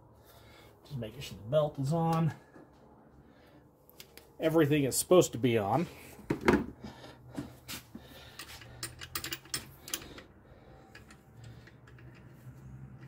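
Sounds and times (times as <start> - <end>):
small metallic clicks and taps: 10.9 - 13.0.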